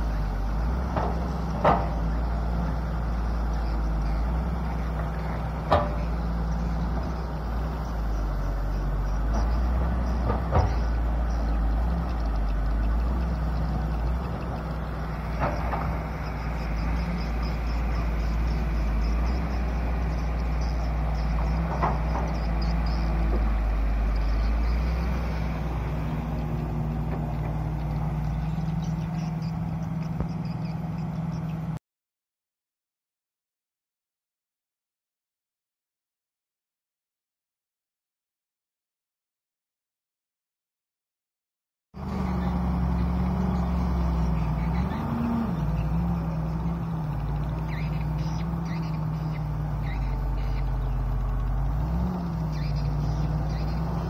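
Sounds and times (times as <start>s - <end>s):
excavator diesel engine droning: 0.0s - 31.8s, 42.0s - 54.0s
sharp knocks of excavator: 0.8s - 2.1s, 5.6s - 6.2s, 10.1s - 11.0s, 15.3s - 16.0s, 21.4s - 22.6s.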